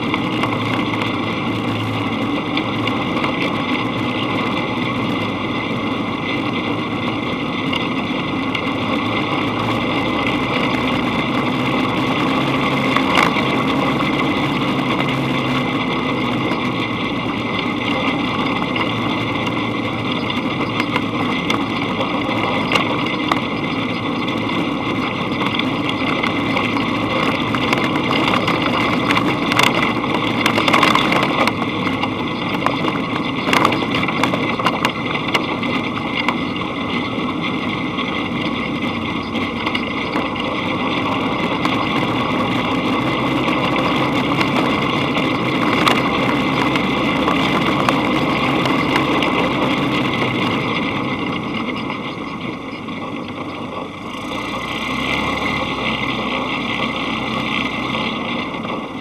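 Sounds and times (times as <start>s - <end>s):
buggy engine running: 0.0s - 59.0s
road and rattle noise: 0.0s - 59.0s.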